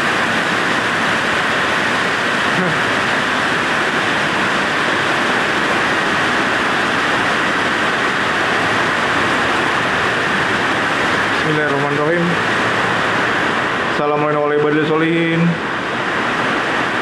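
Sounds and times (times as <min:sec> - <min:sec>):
heavy rain: 0:00.0 - 0:17.0.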